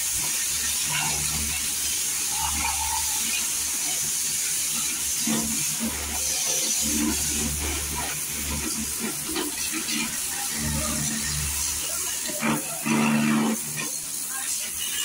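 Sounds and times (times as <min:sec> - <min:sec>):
water spray hissing: 0:00.0 - 0:15.0.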